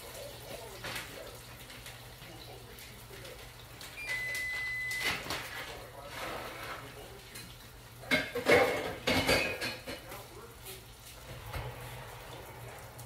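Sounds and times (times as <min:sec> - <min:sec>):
high-pitched beep: 0:04.0 - 0:05.1
dishes and pots clattering: 0:04.5 - 0:10.3.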